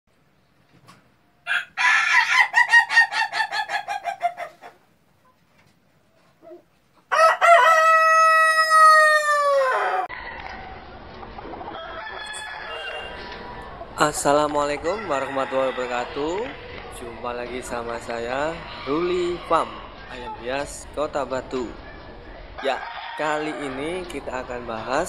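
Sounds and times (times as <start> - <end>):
rooster crowing: 1.4 - 4.4, 7.1 - 10.9, 11.7 - 13.9, 14.8 - 17.1, 18.1 - 20.3, 22.1 - 24.0
steady background noise: 10.1 - 25.0.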